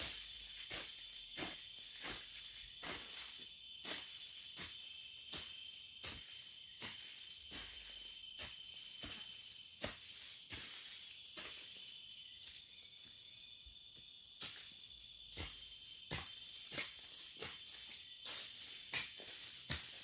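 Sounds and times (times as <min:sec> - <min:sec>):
insects droning: 0:00.0 - 0:20.0
hoe chopping into soil: 0:04.6 - 0:10.9, 0:15.3 - 0:20.0.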